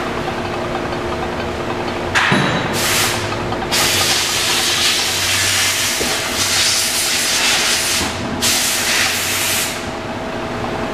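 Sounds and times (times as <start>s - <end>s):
spinning wheel rim hissing: 2.7s - 9.9s.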